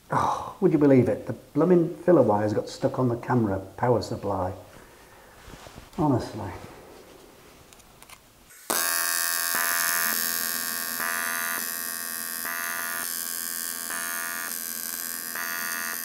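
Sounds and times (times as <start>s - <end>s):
welding arc buzzing: 8.5s - 16.0s.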